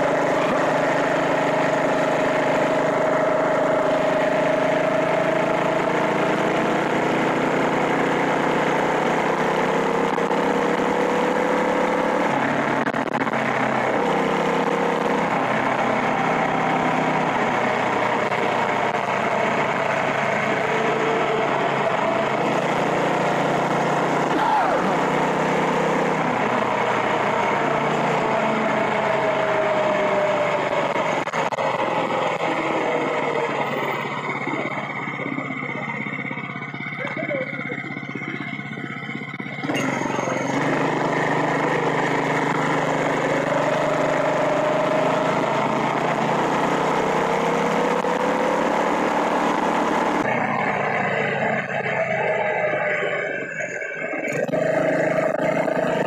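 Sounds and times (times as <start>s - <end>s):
wind and road noise: 0.0s - 36.8s, 37.6s - 56.0s.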